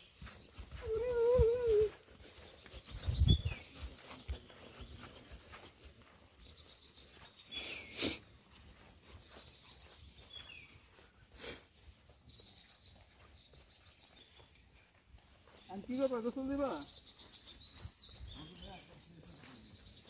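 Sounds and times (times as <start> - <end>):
wild birds calling: 0.0 - 20.0.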